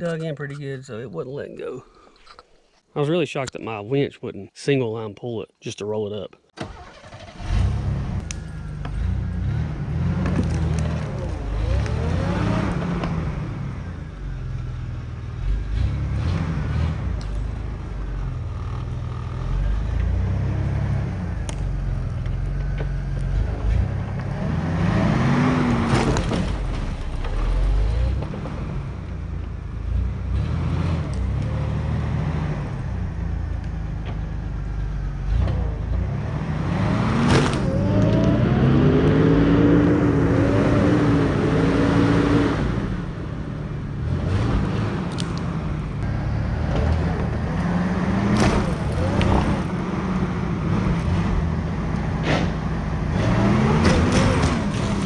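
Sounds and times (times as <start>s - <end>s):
vehicle engine revving: 6.6s - 55.0s.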